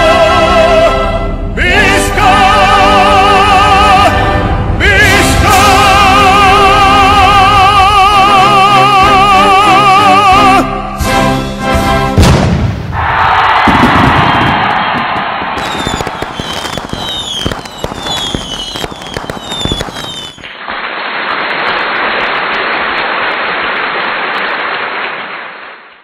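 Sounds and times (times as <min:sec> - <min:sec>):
firecrackers banging: 0:12.2 - 0:26.0
whistling fireworks: 0:12.5 - 0:26.0.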